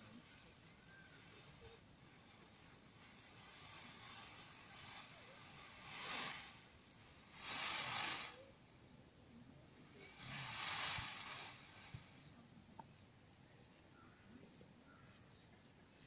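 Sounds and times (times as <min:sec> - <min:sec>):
peacock rattling its train: 0:00.0 - 0:08.8, 0:09.7 - 0:12.5.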